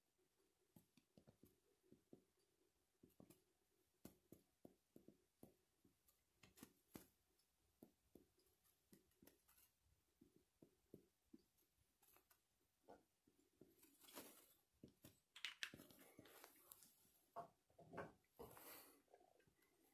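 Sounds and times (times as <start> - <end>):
fingers handling plastic cartridge: 14.8 - 16.8.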